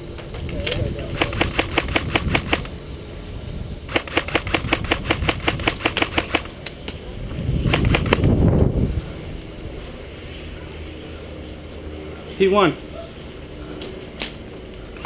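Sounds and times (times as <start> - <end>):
airsoft rifle shots: 1.1 - 2.7, 3.9 - 6.5, 7.6 - 8.3.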